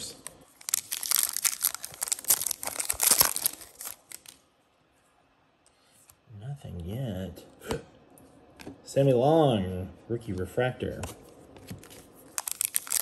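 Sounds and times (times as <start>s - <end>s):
foil wrapper tearing and crinkling: 0.5s - 4.4s, 12.3s - 13.0s.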